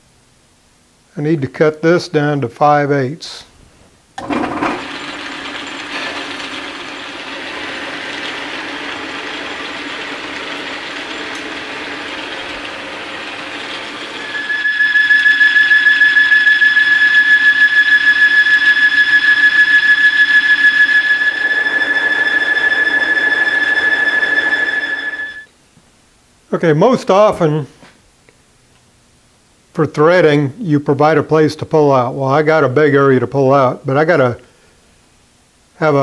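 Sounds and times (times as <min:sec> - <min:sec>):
high-pitched squeal: 0:04.2 - 0:25.5
metal lathe running: 0:04.2 - 0:25.5.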